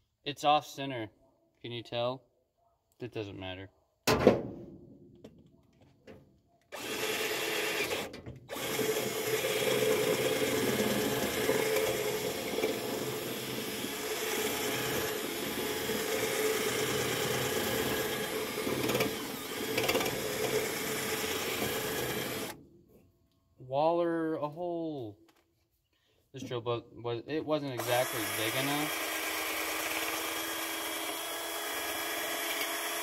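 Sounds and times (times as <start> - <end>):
cordless drill running: 6.7 - 22.6, 27.8 - 33.0.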